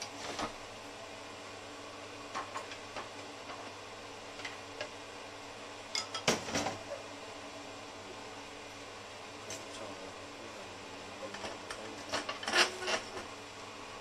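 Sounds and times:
steady low hum: 0:00.0 - 0:14.0
cookware and utensils clinking: 0:05.9 - 0:06.8.

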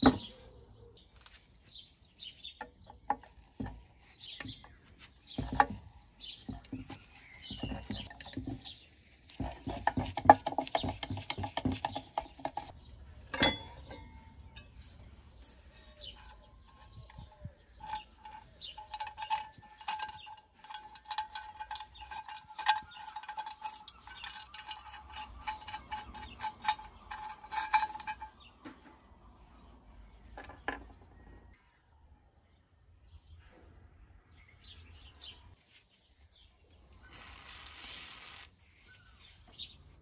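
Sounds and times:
faint metallic ring: 0:13.3 - 0:15.1
screwdriver working a screw: 0:16.1 - 0:28.3.

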